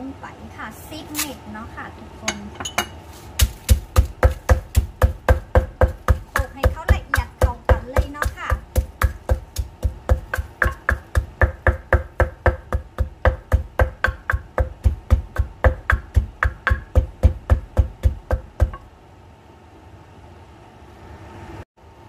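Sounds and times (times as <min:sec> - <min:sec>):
pestle pounding in a mortar: 0:03.3 - 0:18.9.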